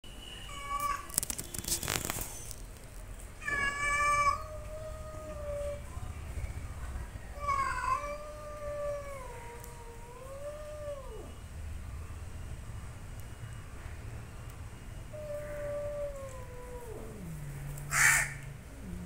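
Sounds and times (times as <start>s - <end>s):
cats yowling: 0.5s - 1.2s, 3.4s - 6.0s, 7.3s - 11.3s, 15.1s - 19.0s.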